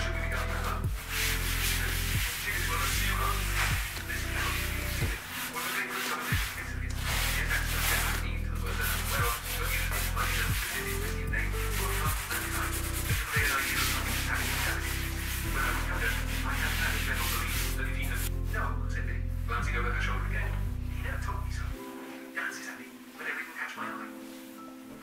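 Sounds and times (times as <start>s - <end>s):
background music: 0.0s - 25.0s
sponge scrubbing countertop: 0.2s - 18.3s.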